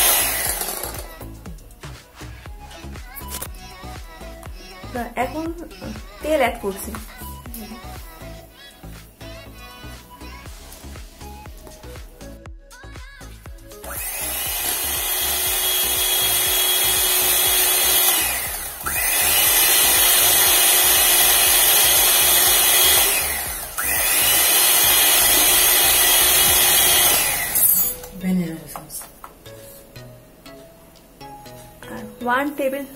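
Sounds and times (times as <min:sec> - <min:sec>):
electric hand mixer whisking: 0:00.0 - 0:01.4, 0:13.8 - 0:28.0.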